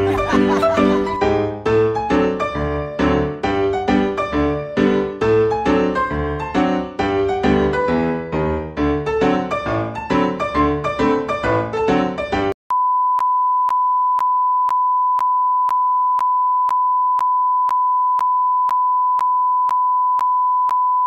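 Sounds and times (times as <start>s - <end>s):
piano music: 0.0s - 12.6s.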